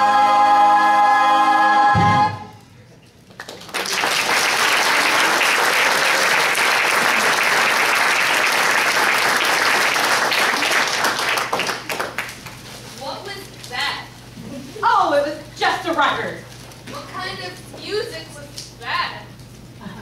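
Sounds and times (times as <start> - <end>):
audience applauding: 3.3 - 12.6.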